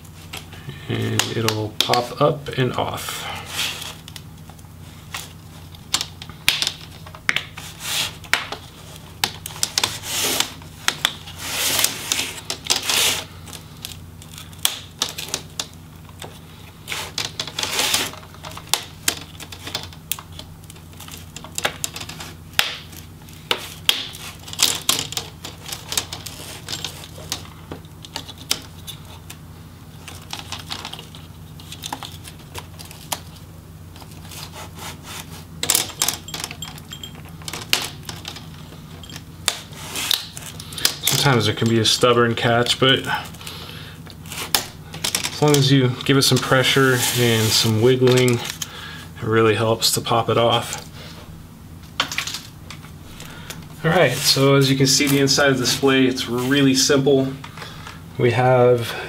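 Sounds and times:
plastic scraping on plastic: 1.1 - 36.3, 42.9 - 48.7.

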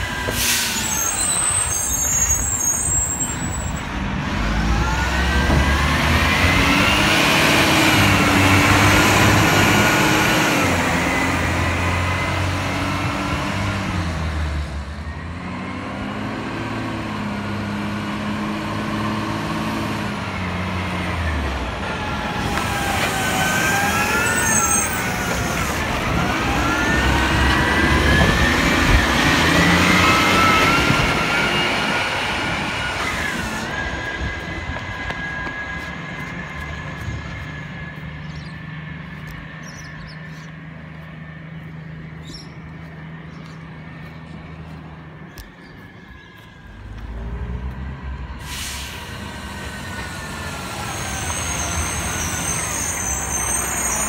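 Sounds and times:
garbage truck diesel engine revving: 4.0 - 37.1
rising and falling whines: 21.0 - 40.1.

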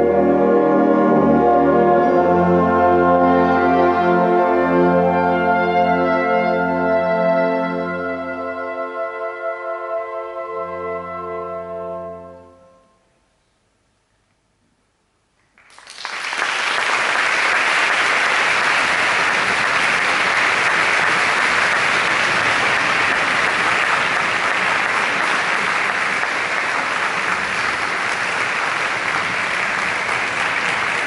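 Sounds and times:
audience applause: 15.5 - 31.0.

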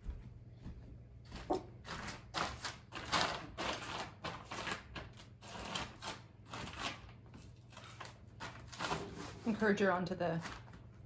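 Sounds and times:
footsteps on hardwood floor: 0.0 - 1.7.

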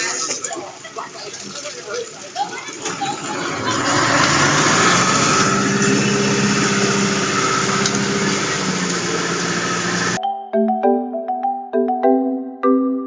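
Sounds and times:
concrete rushing down chute: 0.0 - 10.2
diesel engine at raised revs: 2.6 - 10.2.

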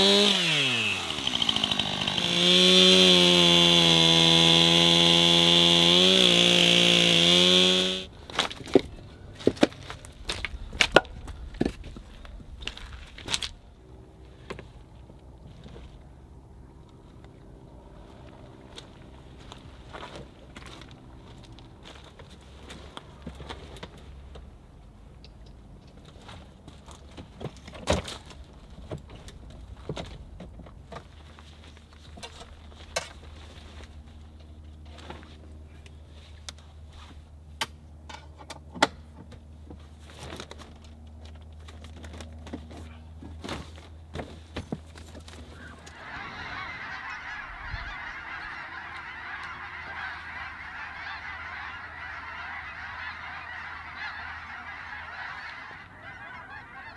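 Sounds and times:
geese honking: 45.4 - 56.9.

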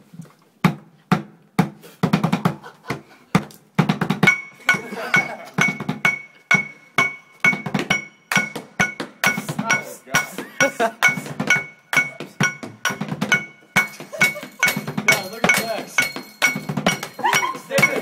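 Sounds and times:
percussion beat on objects: 0.6 - 18.0
metal bat pinging: 3.9 - 18.0.

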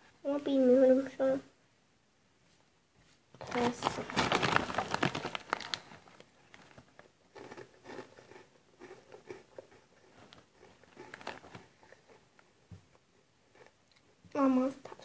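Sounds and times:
snack bag rustling: 3.4 - 14.1
person chewing crunchy snack: 7.1 - 12.3.

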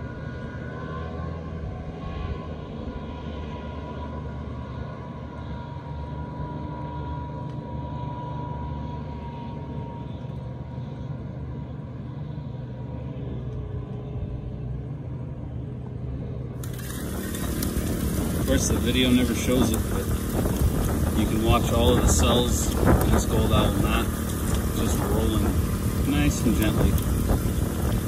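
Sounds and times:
engine humming: 0.0 - 28.0
faint steady whine: 0.0 - 28.0.

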